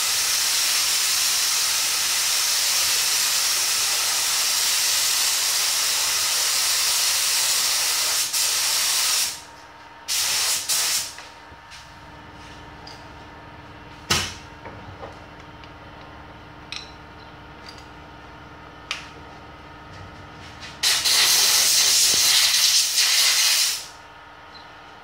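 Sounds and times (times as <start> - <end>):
air blast from spray gun: 0.0 - 9.4, 10.1 - 11.2, 20.8 - 23.9
spray gun spraying: 0.0 - 9.4, 10.1 - 11.2, 20.8 - 23.9.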